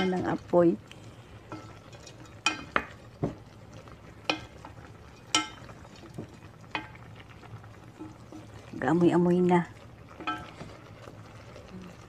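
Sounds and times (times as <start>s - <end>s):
liquid bubbling: 0.0s - 12.0s
wooden spoon knocking metal pot: 1.6s - 3.4s, 10.2s - 10.8s.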